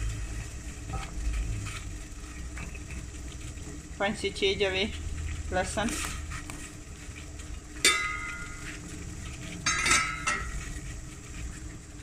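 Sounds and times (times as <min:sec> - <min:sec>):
steel pot clinking: 0:07.7 - 0:10.9.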